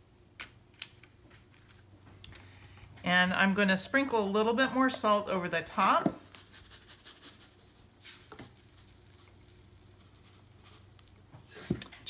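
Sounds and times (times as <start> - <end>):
salt grains pattering: 5.8 - 11.2.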